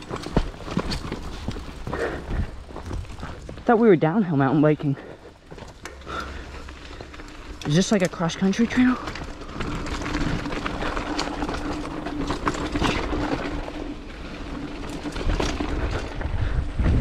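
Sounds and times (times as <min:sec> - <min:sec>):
bike rattling and clicking: 0:00.0 - 0:17.0
bike tyre and drivetrain noise: 0:00.0 - 0:17.0.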